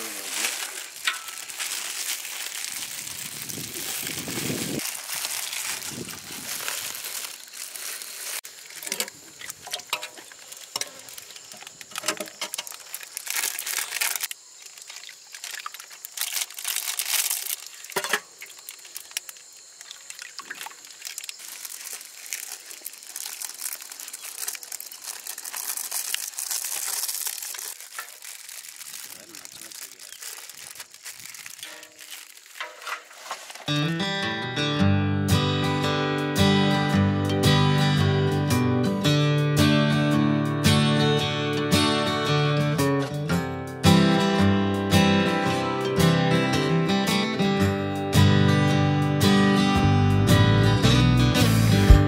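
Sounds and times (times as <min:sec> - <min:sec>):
crinkling and crackling: 0:00.0 - 0:33.8.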